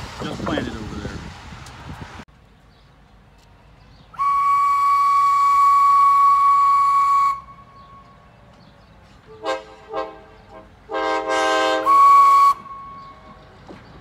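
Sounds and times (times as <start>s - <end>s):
steam locomotive whistle: 4.2s - 8.2s, 9.3s - 13.4s.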